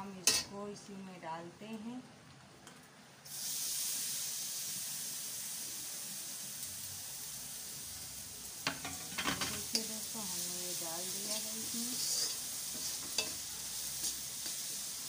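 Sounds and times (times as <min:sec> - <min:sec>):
peel sizzling in hot oil: 0:03.2 - 0:15.0
spatula knocking and scraping pan: 0:08.7 - 0:09.9, 0:12.0 - 0:13.4.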